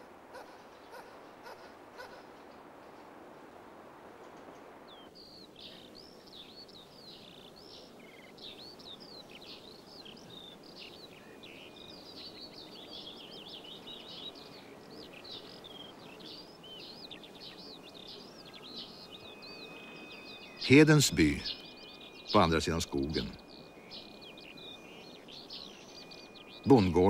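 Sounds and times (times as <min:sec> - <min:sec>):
faint outdoor hiss: 0:00.0 - 0:27.0
songbirds chirping and singing: 0:04.9 - 0:27.0.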